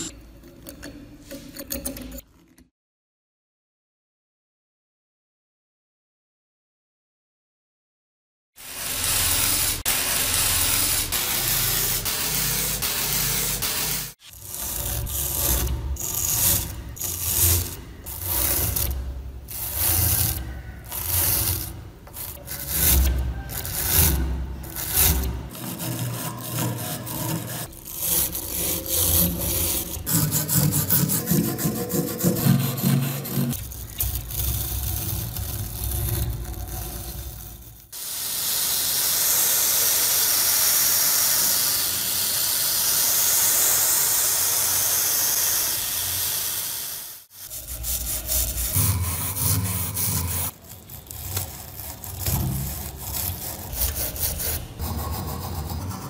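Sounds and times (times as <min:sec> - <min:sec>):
brush sweeping rust powder: 0:08.6 - 0:18.9, 0:47.3 - 0:56.0
wire brush scrubbing rusty metal: 0:08.6 - 0:37.8, 0:47.2 - 0:56.0.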